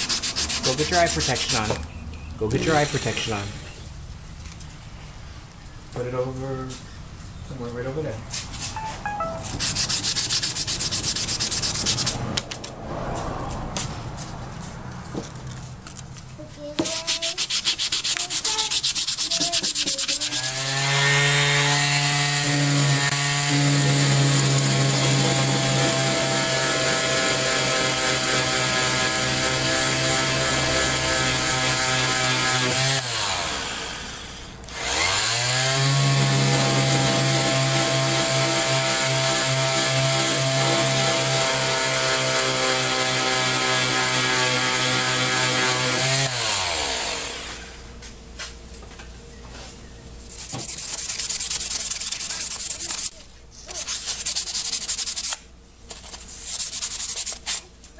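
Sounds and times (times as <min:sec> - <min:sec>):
sander rasping on metal: 0:00.0 - 0:01.8, 0:02.5 - 0:03.8, 0:16.8 - 0:34.1, 0:34.8 - 0:47.7, 0:50.3 - 0:53.1.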